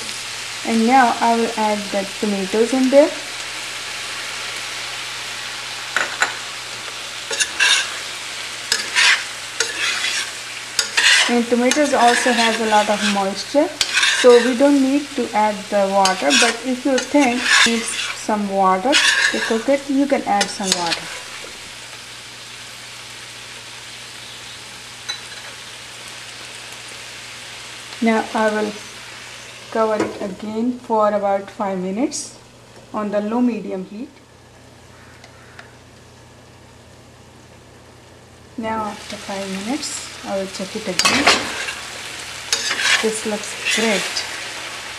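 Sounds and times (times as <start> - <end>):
vegetables sizzling in a pan: 0.0 - 44.9
metal spoon scraping a pan: 7.3 - 8.1, 8.7 - 21.5, 40.5 - 44.8.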